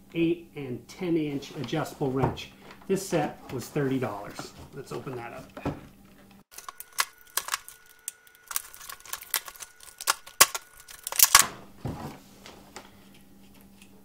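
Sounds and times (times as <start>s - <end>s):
plastic packaging crackling: 6.5s - 11.5s.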